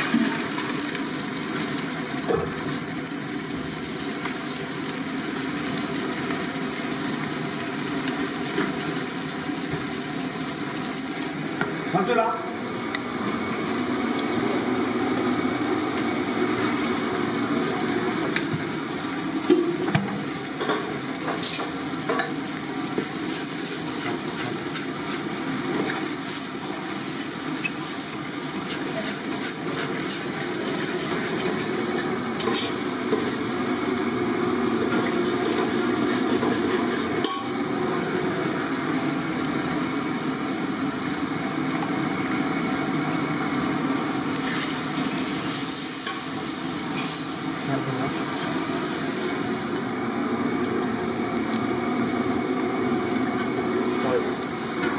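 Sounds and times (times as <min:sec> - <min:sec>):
spices frying in oil: 0:00.0 - 0:54.9.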